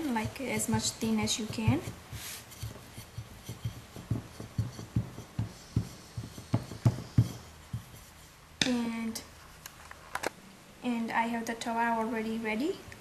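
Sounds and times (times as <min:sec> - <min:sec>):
rolling pin knocking on wooden board: 0:00.2 - 0:08.0.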